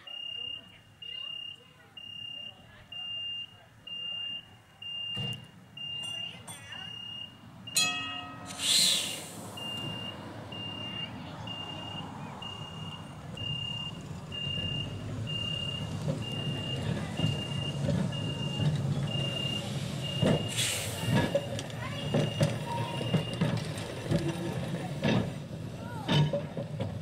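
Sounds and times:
crossing signal beeping: 0.0 - 23.7
tram rumbling: 5.2 - 27.0
single ringing note: 7.8 - 9.0
short hiss: 8.5 - 9.9, 20.5 - 21.1.

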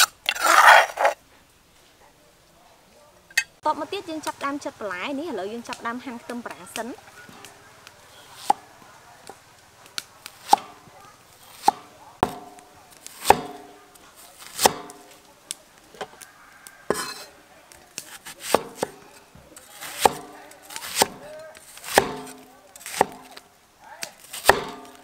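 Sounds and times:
cleaver chopping on wooden board: 10.3 - 10.8, 11.5 - 13.8, 14.4 - 15.1, 18.2 - 19.0, 19.8 - 23.4, 24.3 - 25.0.

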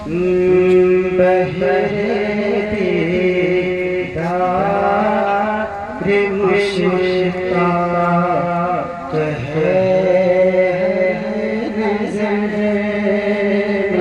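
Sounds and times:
man singing into a microphone: 0.0 - 14.0.

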